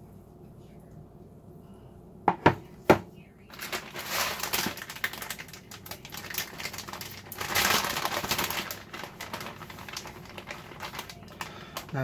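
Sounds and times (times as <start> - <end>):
plastic bag crinkling: 3.4 - 12.0.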